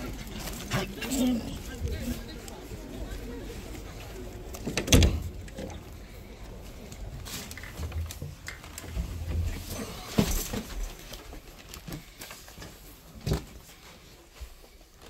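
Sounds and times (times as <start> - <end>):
footsteps: 0.0 - 15.0.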